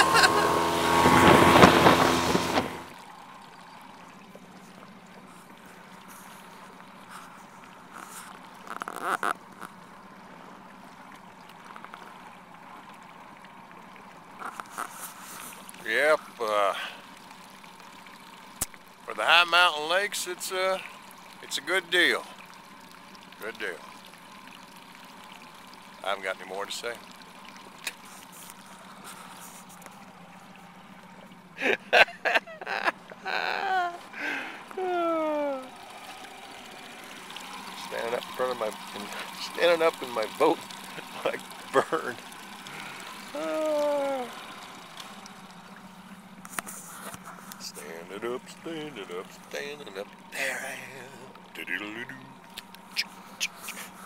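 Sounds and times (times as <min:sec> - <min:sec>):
splashing and knocks: 0:00.0 - 0:03.0
low steady hum: 0:00.0 - 0:54.0
outboard motor idling: 0:00.0 - 0:54.0
water lapping against boat hull: 0:00.0 - 0:54.0.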